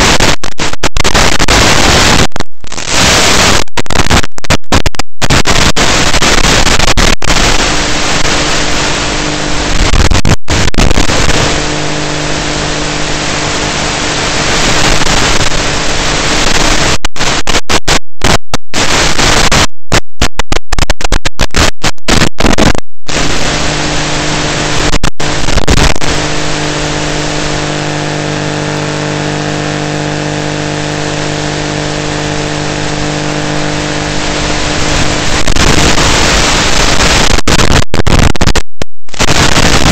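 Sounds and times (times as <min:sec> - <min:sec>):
static hiss: 0:00.0 - 0:39.9
steady low buzz: 0:07.4 - 0:09.9, 0:10.5 - 0:17.4, 0:23.1 - 0:36.9.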